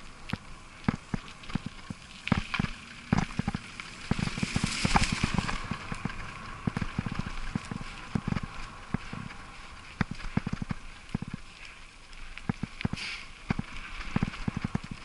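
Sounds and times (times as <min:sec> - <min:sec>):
bicycle rattling over bumps: 0:00.0 - 0:15.0
bicycle tyres crunching on leaves: 0:00.0 - 0:15.0.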